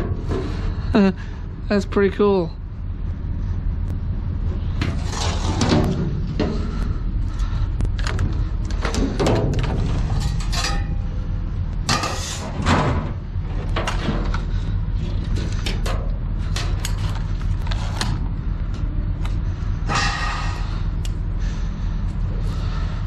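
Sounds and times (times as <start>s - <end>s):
steady low rumble: 0.0s - 23.0s
plastic parts clattering in metal dumpster: 8.0s - 11.0s.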